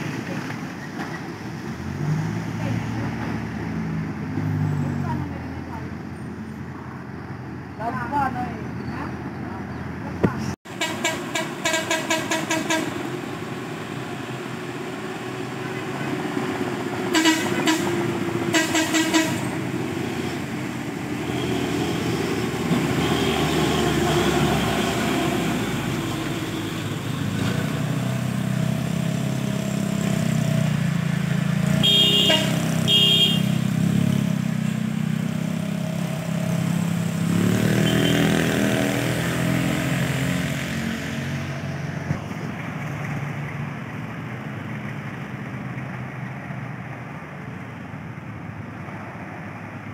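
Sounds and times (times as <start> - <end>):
traffic passing: 0.0 - 49.9
truck diesel engine: 0.0 - 49.9
vehicle horn toots: 10.7 - 13.0, 17.1 - 19.6, 31.8 - 33.6, 37.8 - 38.4.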